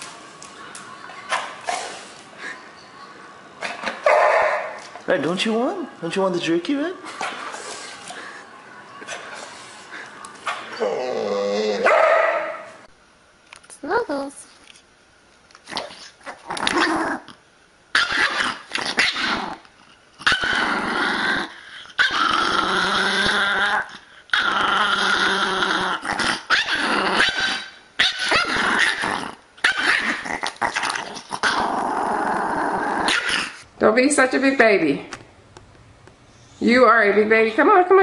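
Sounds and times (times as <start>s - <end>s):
dog whining and grumbling: 10.7s - 11.9s.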